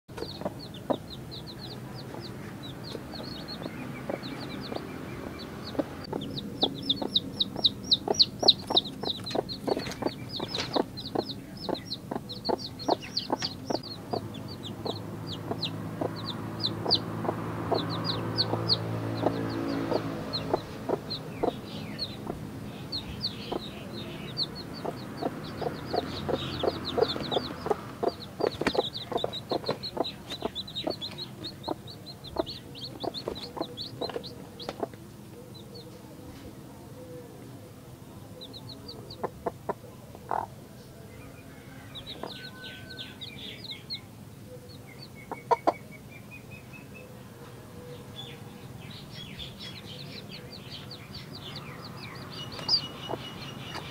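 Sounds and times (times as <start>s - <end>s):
hen clucking softly: 0.1s - 36.2s, 38.4s - 40.6s, 45.0s - 45.9s
chicks peeping: 0.1s - 53.9s.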